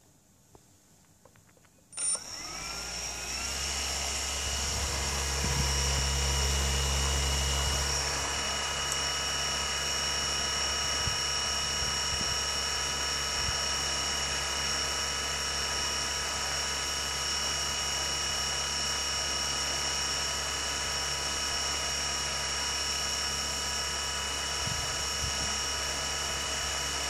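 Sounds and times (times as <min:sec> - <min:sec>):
electric motor whining: 0:02.0 - 0:15.0.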